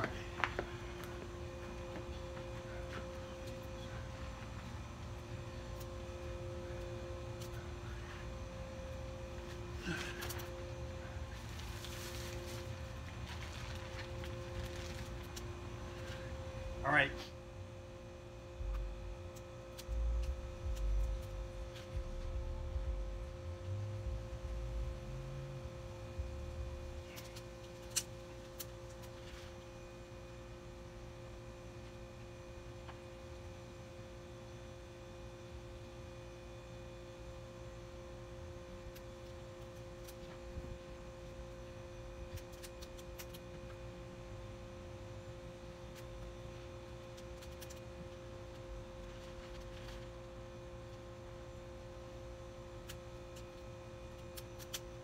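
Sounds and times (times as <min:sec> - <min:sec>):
low rumble: 0:18.6 - 0:19.2, 0:19.8 - 0:27.1
two-note hum: 0:19.8 - 0:27.0.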